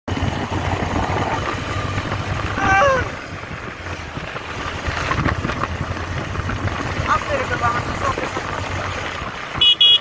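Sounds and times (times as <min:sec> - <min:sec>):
motorcycle engine: 0:00.1 - 0:10.0.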